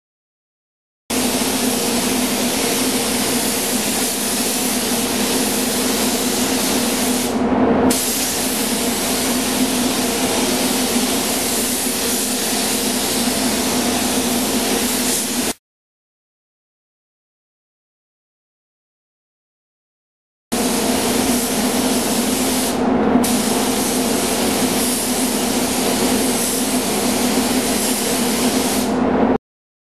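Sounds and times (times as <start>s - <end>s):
paint spray gun hissing: 1.1s - 7.3s, 7.9s - 15.6s, 20.6s - 28.9s
steady low hum: 1.2s - 14.8s.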